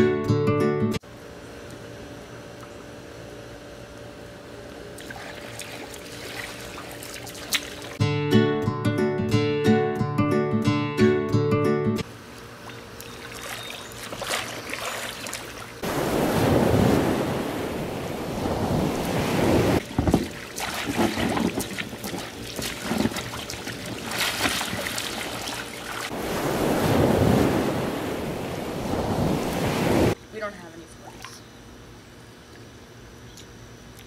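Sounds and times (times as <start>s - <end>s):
water splashing in pool: 5.0s - 8.0s, 12.6s - 30.2s.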